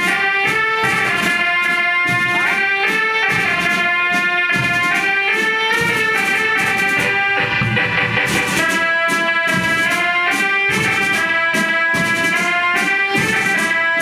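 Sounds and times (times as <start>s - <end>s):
marching band brass melody: 0.0s - 14.0s
steady drum beat: 0.0s - 14.0s.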